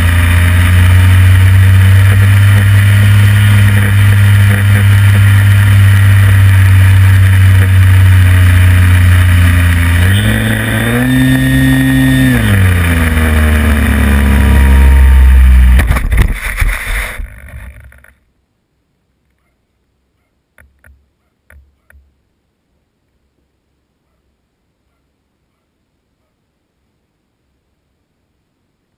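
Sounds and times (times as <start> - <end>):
model plane motor drone: 0.0 - 18.1.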